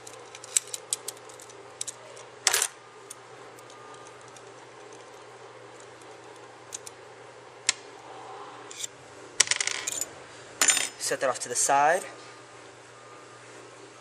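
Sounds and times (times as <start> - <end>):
metal parts clicking and clattering: 0.0 - 2.7, 8.7 - 11.0.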